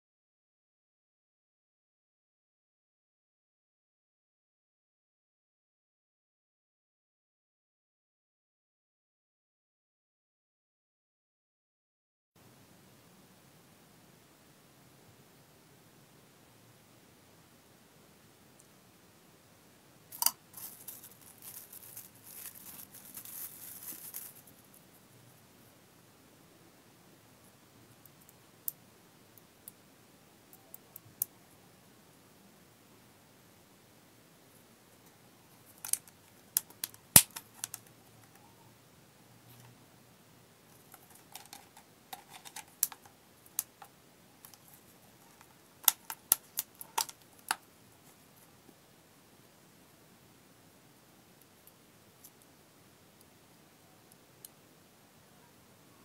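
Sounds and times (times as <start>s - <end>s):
plastic bag crinkling and tearing: 20.2s - 24.7s.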